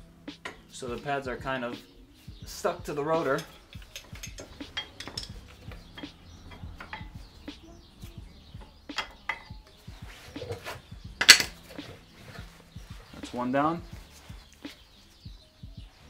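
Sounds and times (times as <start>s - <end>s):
sharp metal clack: 3.2s - 7.2s, 11.2s - 11.6s.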